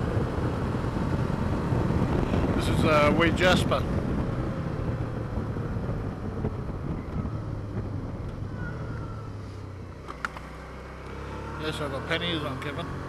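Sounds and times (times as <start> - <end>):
wind rush on microphone: 0.0 - 9.3
motorcycle engine hum: 0.0 - 13.0.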